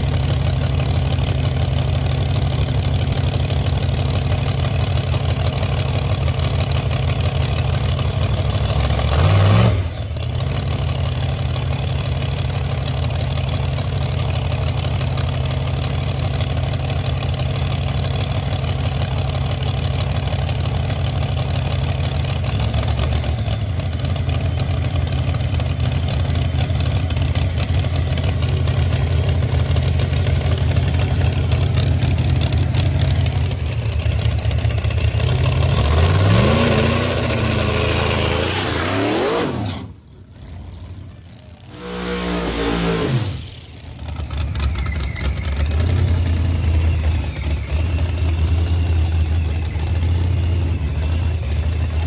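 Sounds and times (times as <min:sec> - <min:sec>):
car engine revving: 0:27.1 - 0:52.0.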